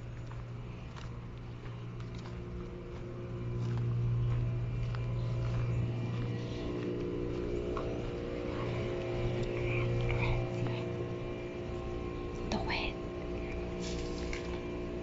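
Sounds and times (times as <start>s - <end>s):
air-conditioning units humming: 0.0s - 15.0s
footsteps on gravel: 0.0s - 15.0s.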